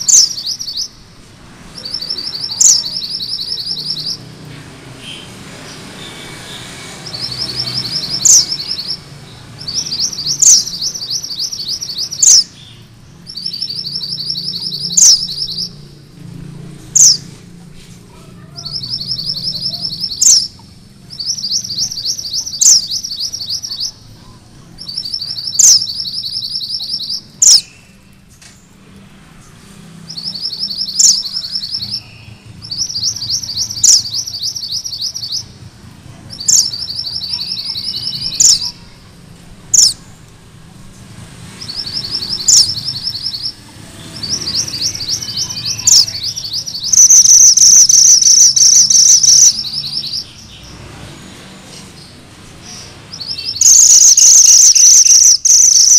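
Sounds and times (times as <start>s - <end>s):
bird singing high trills: 0.0s - 1.1s, 1.7s - 4.4s, 5.0s - 16.0s, 17.0s - 17.3s, 18.5s - 24.0s, 24.8s - 28.1s, 30.1s - 35.6s, 36.4s - 39.0s, 41.6s - 50.8s, 52.7s - 55.9s.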